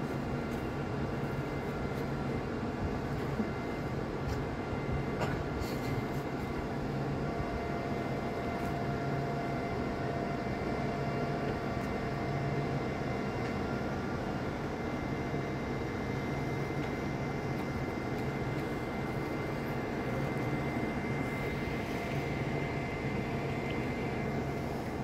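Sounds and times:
crane diesel engine running: 0.0s - 25.0s.

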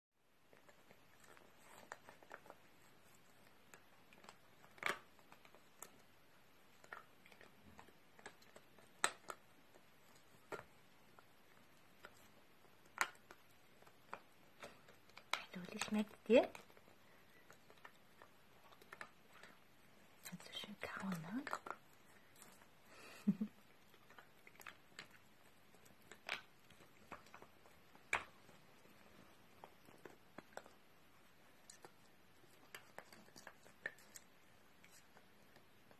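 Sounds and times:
dog gnawing a hard chew: 0.5s - 19.7s, 21.5s - 35.9s.

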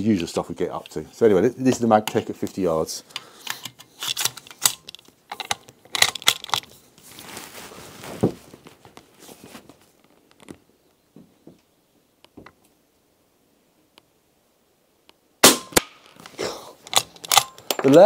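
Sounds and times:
rifle handling clicks and rattles: 1.7s - 6.8s, 15.8s - 18.0s.

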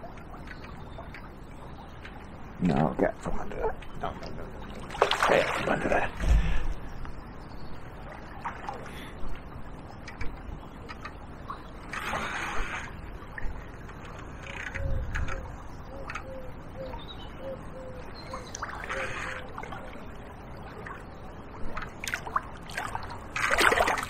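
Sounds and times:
faint water noise: 0.0s - 24.0s
fish splashing at surface: 22.1s - 24.0s.

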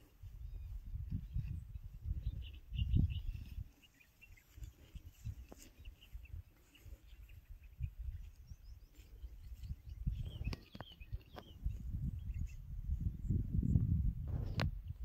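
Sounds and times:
small birds chirping: 0.0s - 13.5s
low wind rumble: 7.4s - 15.0s.

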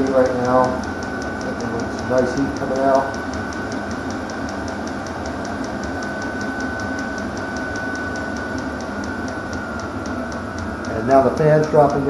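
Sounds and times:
fuel pump ticking: 0.0s - 12.0s
heater fan whirring: 0.0s - 12.0s.

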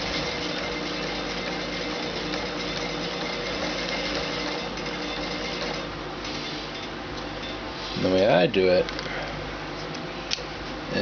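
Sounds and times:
sewing machine running: 0.0s - 6.5s.

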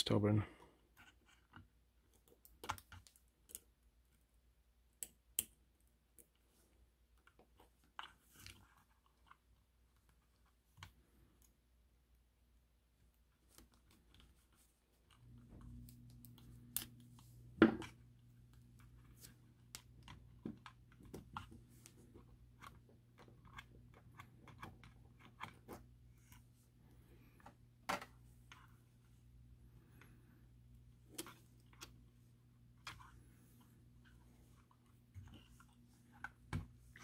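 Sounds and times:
low steady hum: 0.0s - 37.0s.

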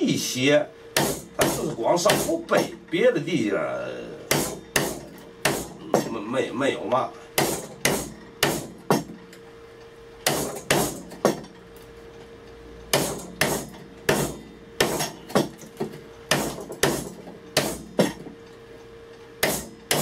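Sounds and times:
hammer striking a chisel: 1.0s - 2.7s, 4.3s - 6.2s, 7.4s - 9.2s, 10.2s - 11.5s, 12.9s - 18.3s, 19.4s - 20.0s.

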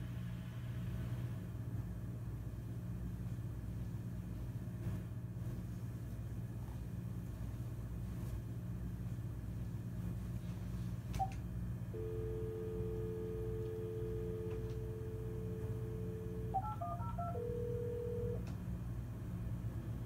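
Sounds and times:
low steady hum: 0.0s - 20.0s
telephone ringing tone: 12.0s - 18.4s
keypad tones: 12.0s - 18.5s
telephone dial tone: 12.0s - 18.5s.

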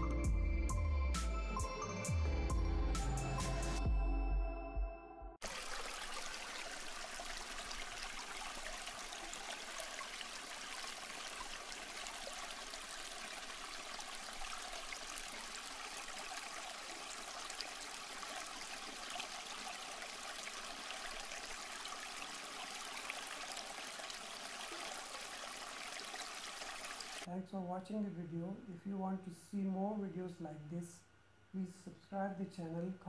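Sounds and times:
water trickling and splashing: 5.4s - 27.3s.

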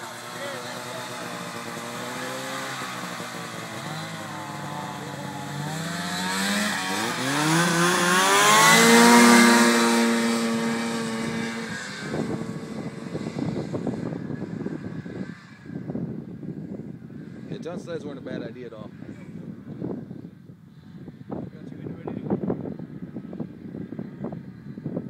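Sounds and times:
snowmobile engines revving: 0.0s - 15.6s
rough choppy engine noise: 0.0s - 16.2s.

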